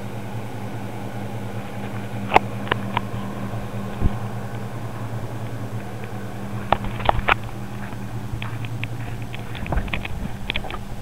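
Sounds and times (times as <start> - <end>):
vehicle engine idling: 0.0 - 11.0
sharp clicks and knocks: 5.4 - 11.0.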